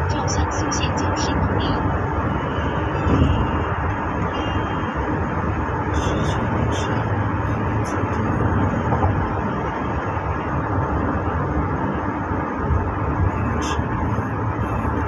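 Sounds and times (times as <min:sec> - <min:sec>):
car cabin road and engine noise: 0:00.0 - 0:15.0.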